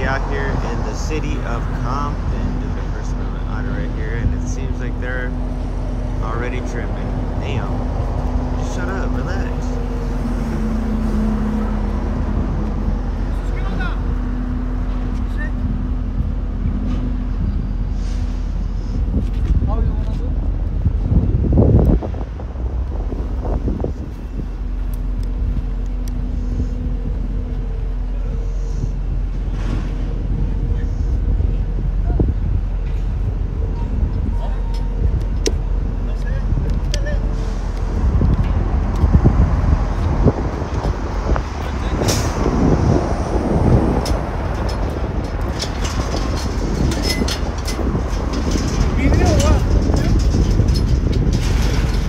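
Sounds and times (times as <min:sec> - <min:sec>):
low outdoor rumble: 0:00.0 - 0:52.0.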